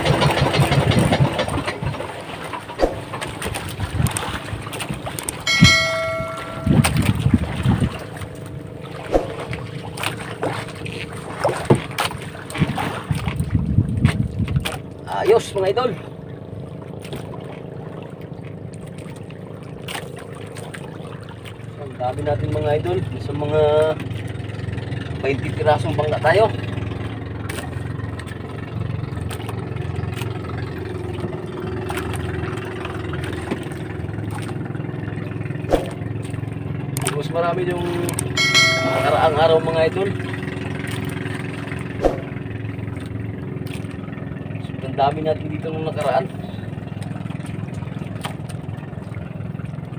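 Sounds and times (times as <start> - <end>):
boat engine running: 0.0 - 49.9
wind: 0.0 - 49.9
water noise: 2.0 - 23.2, 37.7 - 44.9, 46.0 - 49.9.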